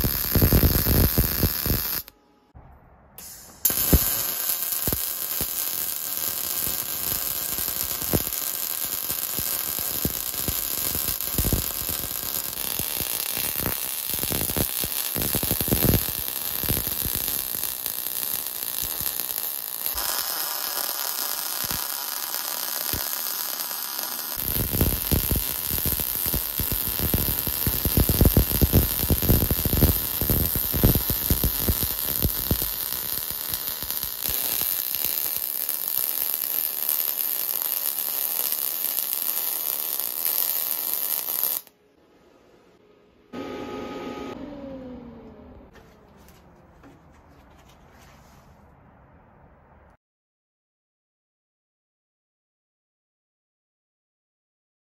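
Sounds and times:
welding arc crackling: 0.0s - 2.1s, 3.2s - 41.7s.

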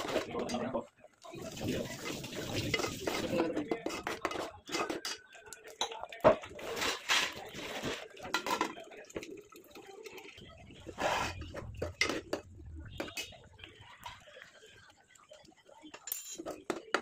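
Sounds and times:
water pouring: 1.3s - 3.7s
spoon scraping in metal pan: 2.0s - 5.2s, 6.5s - 8.7s, 10.8s - 12.4s.

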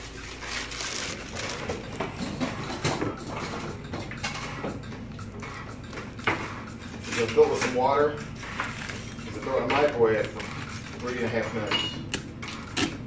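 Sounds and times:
plastic wrapper crinkling: 0.0s - 2.0s.

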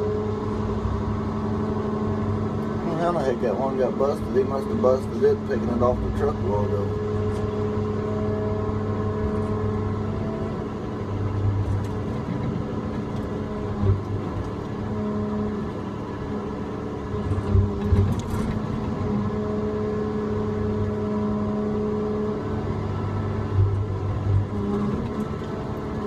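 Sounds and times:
diesel engine and hydraulics running: 0.0s - 26.0s.

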